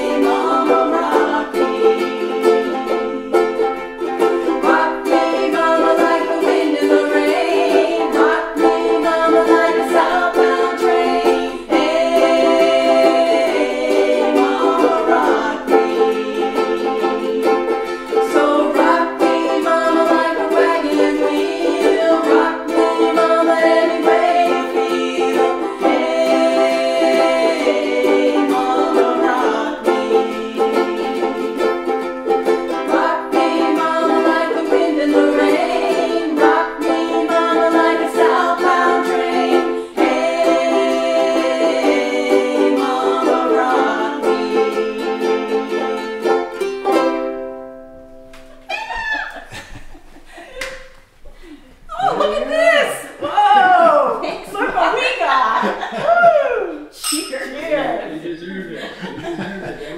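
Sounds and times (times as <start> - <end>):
ukuleles strumming chords: 0.0 - 59.9.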